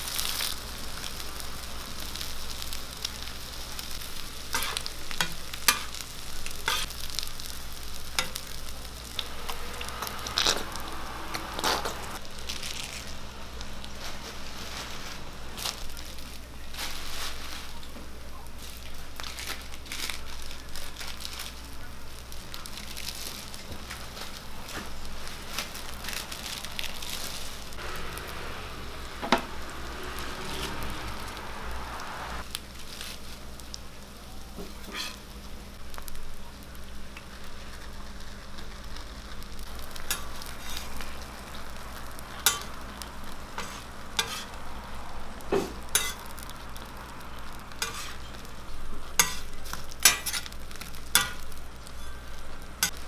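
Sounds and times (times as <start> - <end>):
food sizzling on griddle: 0.0 - 53.0
metal spatula scraping griddle: 4.5 - 6.0, 6.6 - 6.9, 9.1 - 12.2, 34.8 - 35.2, 40.0 - 41.0, 42.4 - 42.8, 43.6 - 44.6, 45.6 - 46.4, 47.8 - 48.4, 49.2 - 52.2.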